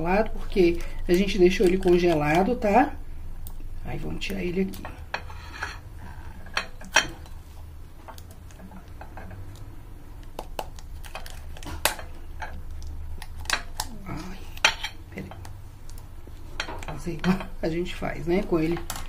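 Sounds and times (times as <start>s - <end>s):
plastic cup clicking and crackling: 8.9s - 12.0s.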